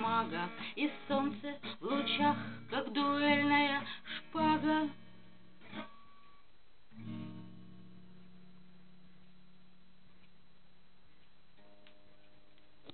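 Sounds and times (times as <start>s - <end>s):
woman singing: 0.0s - 5.0s
acoustic guitar strumming: 0.0s - 10.3s
faint low hum: 0.0s - 12.9s.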